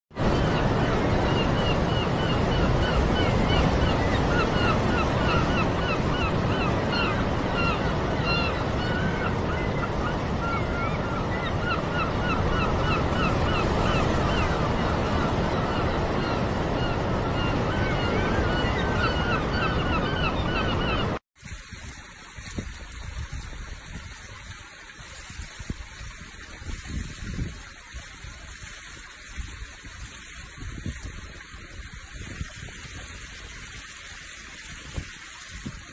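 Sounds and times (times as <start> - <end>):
seabirds chirping: 0.2 - 21.2
sea surf against cliff: 0.2 - 21.6.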